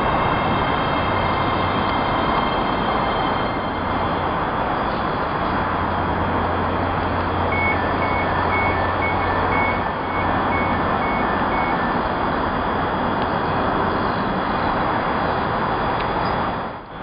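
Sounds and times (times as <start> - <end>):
train equipment humming: 0.0 - 17.0
high and low door warning beeps: 7.5 - 12.0.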